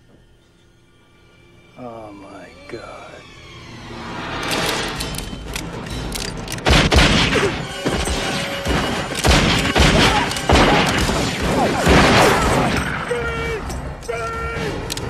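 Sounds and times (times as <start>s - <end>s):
film score: 0.0s - 15.0s
loud revolver shots: 6.6s - 12.9s.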